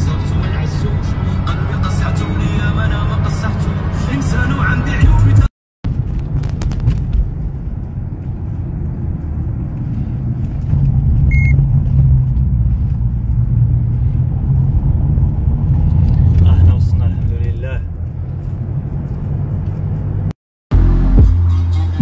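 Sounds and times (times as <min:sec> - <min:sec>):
car engine and road noise: 0:00.0 - 0:22.0
short high beep: 0:11.3 - 0:11.6.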